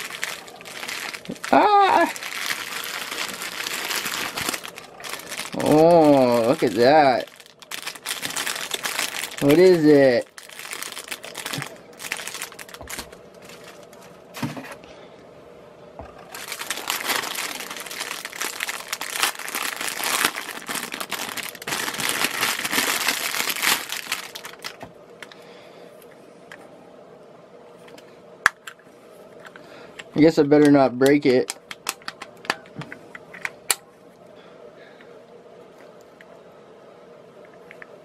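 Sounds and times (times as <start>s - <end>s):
plastic bag crinkling: 0.0s - 14.8s, 16.2s - 24.9s.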